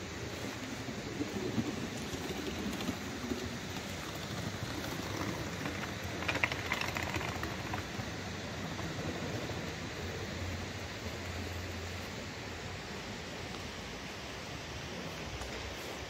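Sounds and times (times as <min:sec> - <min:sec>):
street background hiss: 0:00.0 - 0:16.0.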